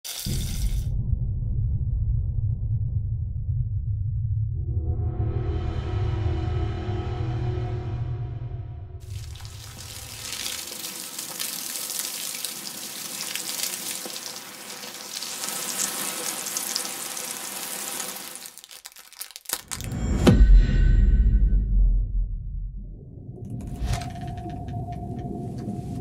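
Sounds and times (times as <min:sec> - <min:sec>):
water pouring into a pot: 0:00.0 - 0:00.9, 0:09.0 - 0:19.7
loud thump with low rumble: 0:00.4 - 0:05.1, 0:19.9 - 0:23.8.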